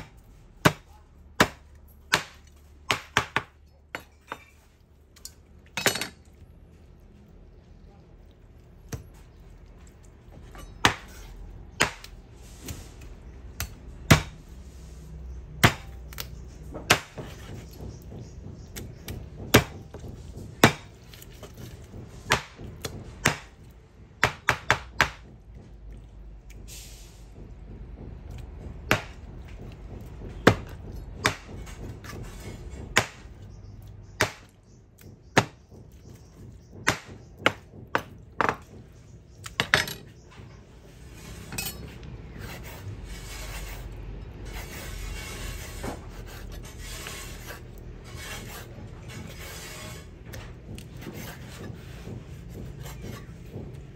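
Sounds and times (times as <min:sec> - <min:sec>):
knife chopping on wooden board: 0:00.0 - 0:04.5, 0:10.6 - 0:12.8, 0:13.6 - 0:14.4, 0:15.6 - 0:25.7, 0:27.7 - 0:39.8, 0:50.3 - 0:53.9.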